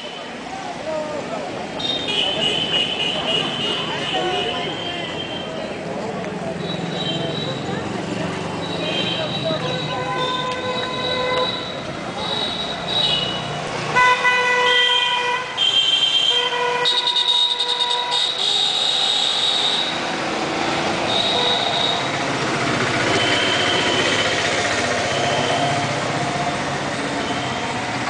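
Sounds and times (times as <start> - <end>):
street traffic: 0.0 - 28.0
vehicle horns honking: 1.8 - 5.6, 8.6 - 20.1, 20.9 - 22.2, 23.0 - 25.7.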